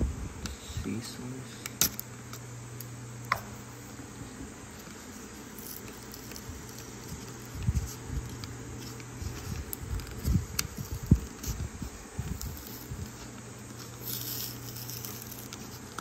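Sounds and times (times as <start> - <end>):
sharp plastic crackles: 1.6 - 3.4, 4.7 - 16.0
plastic and cardboard crinkling: 4.7 - 16.0.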